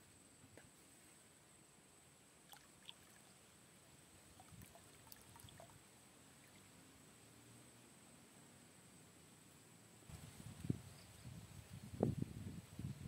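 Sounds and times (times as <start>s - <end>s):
water splashing and trickling: 2.4s - 6.7s.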